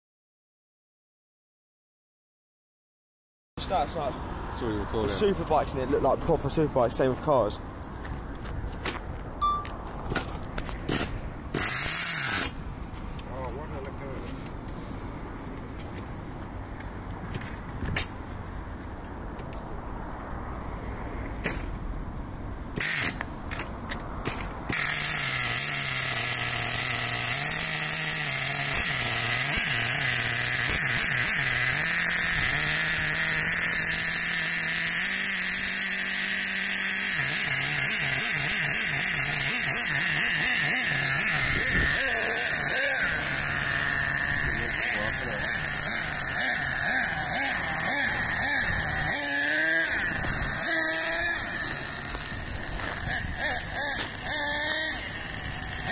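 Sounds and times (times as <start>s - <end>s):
small engine buzzing rattle: 10.0s - 16.2s, 22.8s - 55.9s.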